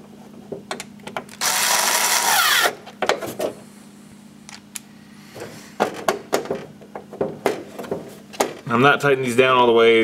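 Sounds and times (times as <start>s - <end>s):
cordless drill driving screw: 1.4s - 2.8s.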